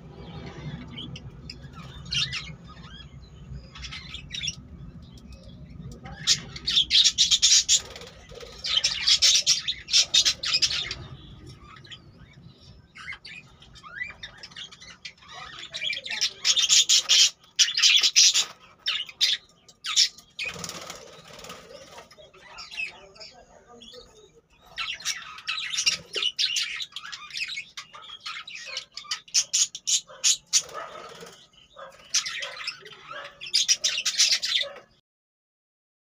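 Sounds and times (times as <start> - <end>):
budgerigars chirping and chattering: 0.0 - 35.0.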